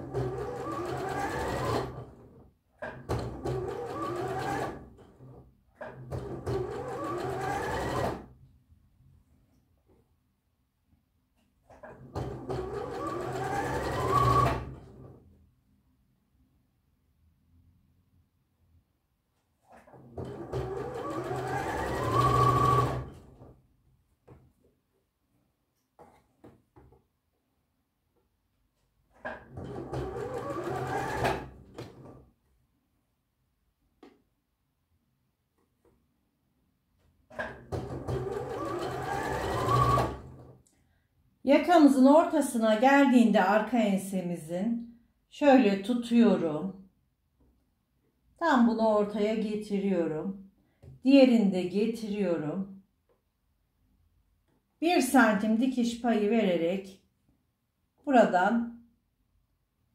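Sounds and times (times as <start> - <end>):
sewing machine motor whine: 20.6 - 23.0.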